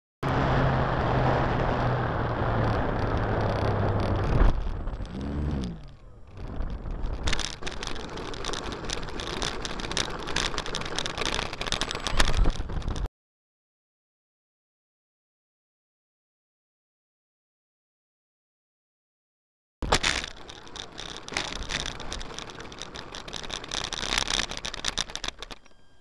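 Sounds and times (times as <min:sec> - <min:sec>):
model plane motor whirring: 0:01.6 - 0:13.0, 0:19.9 - 0:26.0
rattling and clicking: 0:02.5 - 0:13.1, 0:19.8 - 0:25.8.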